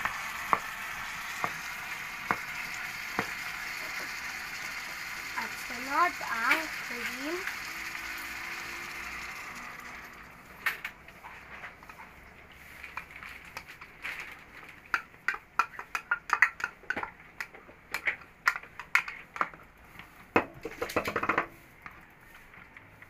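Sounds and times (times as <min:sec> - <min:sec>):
cream pouring: 0:00.0 - 0:10.5.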